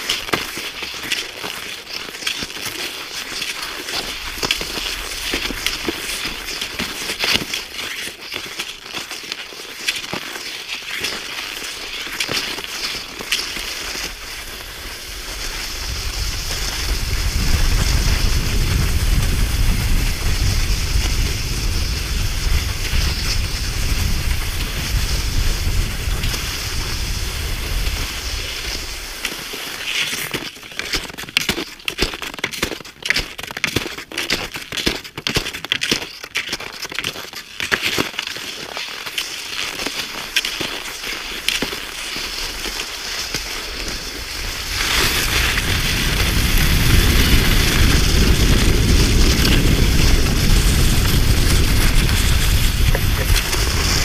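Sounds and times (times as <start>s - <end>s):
footsteps crunching on snow: 0.0s - 54.0s
low rumble: 15.8s - 28.2s, 44.7s - 54.0s.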